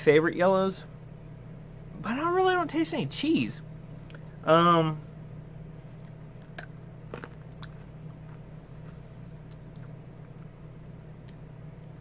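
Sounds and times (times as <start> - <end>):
steady low hum: 0.0 - 12.0
hard candy crunching between teeth: 6.0 - 10.5.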